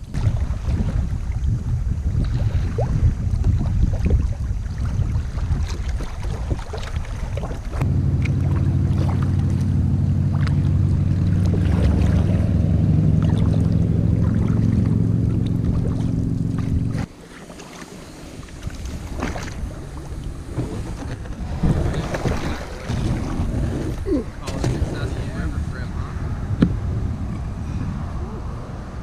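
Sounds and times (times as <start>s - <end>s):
wind buffeting microphone: 0.0s - 17.2s, 18.2s - 29.0s
small water splashes: 0.0s - 25.1s
steady low drone: 7.5s - 17.5s.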